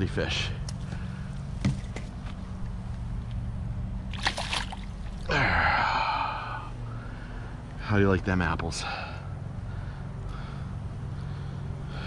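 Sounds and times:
steady low hum: 0.0s - 12.0s
water splashing: 4.1s - 5.4s.

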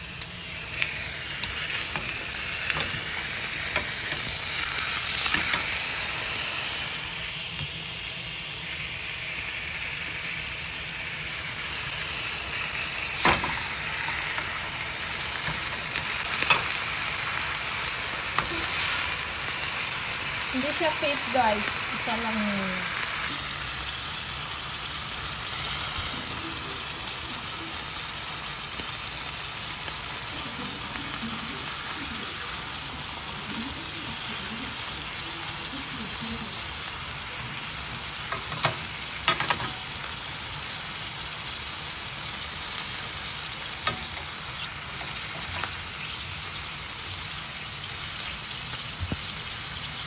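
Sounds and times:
steak sizzling in a frying pan: 0.0s - 50.0s
tongs clicking on a pan: 0.2s - 6.0s, 13.2s - 17.6s, 18.2s - 19.4s, 38.2s - 40.1s, 42.7s - 46.2s.

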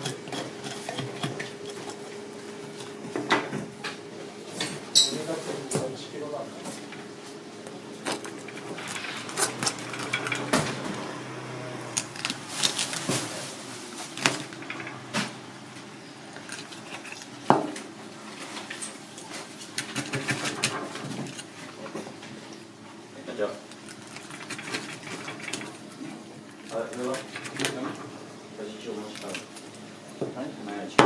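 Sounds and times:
knife scraping fish: 0.0s - 2.0s, 19.5s - 21.6s, 23.8s - 25.6s.

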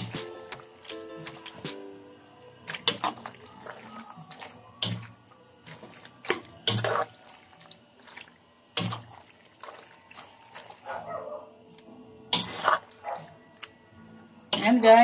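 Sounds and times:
spatula stirring pasta in a wok: 2.6s - 10.9s, 12.3s - 13.1s.

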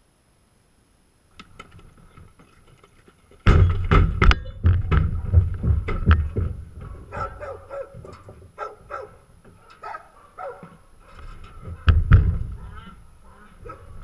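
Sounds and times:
horse hooves on trailer ramp: 1.4s - 12.9s.

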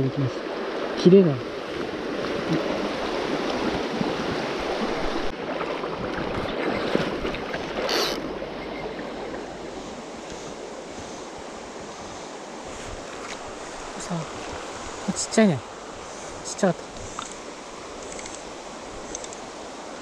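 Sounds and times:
stream rushing over stones: 0.0s - 8.5s.

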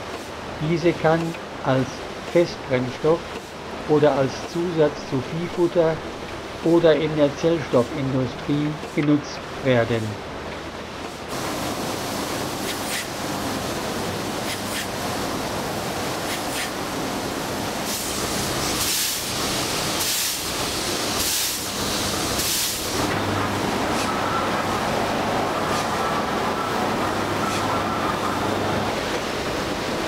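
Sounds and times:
mill machinery running: 0.0s - 30.0s
steam hissing in bursts: 11.2s - 26.3s.

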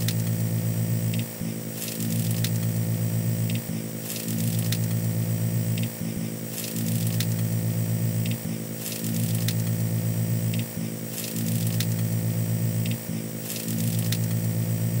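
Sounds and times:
low electrical buzz: 0.0s - 15.0s
crackle and light ticks: 1.0s - 2.7s, 3.4s - 5.0s, 6.6s - 7.4s, 8.2s - 9.7s, 10.4s - 12.1s, 12.8s - 14.4s.

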